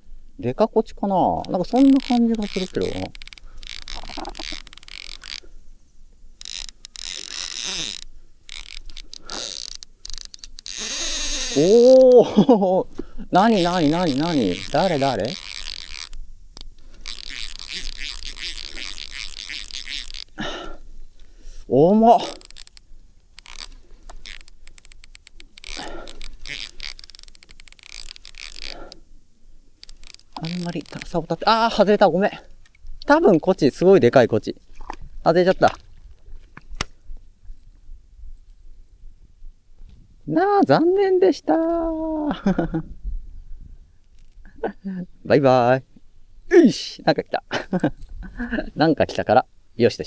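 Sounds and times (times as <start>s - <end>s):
fishing reel drag clicking: 1.0s - 12.2s, 13.1s - 20.4s, 21.0s - 33.9s, 44.0s - 44.5s.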